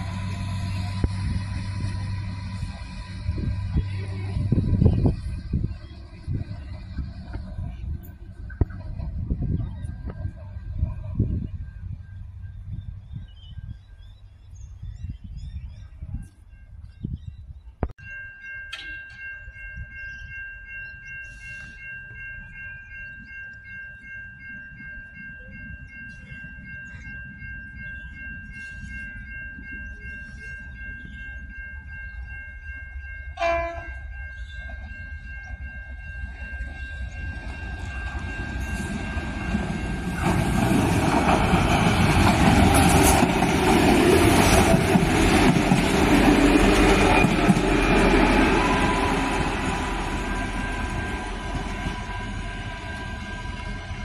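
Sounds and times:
railcar wheels on rails: 0:00.0 - 0:54.0
level crossing bell ringing: 0:18.0 - 0:40.3
train horn blast: 0:33.4 - 0:34.0.

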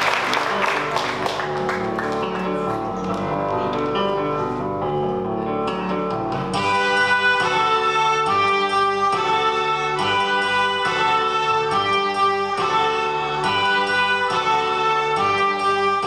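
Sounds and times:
melodica ensemble playing: 0:06.6 - 0:16.0.

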